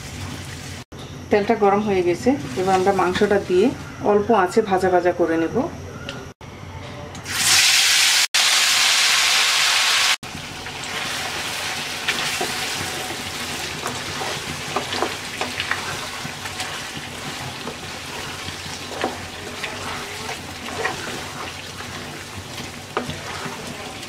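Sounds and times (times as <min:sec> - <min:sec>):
wooden spatula scraping pan: 0:02.4 - 0:03.4, 0:11.0 - 0:24.0
meat sizzling in oil: 0:07.3 - 0:24.0.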